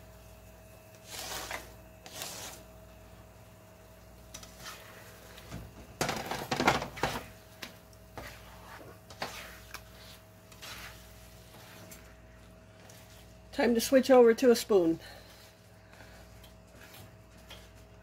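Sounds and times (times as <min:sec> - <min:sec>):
steady low hum: 0:00.0 - 0:18.0
tongs scraping frying pan: 0:08.1 - 0:12.0.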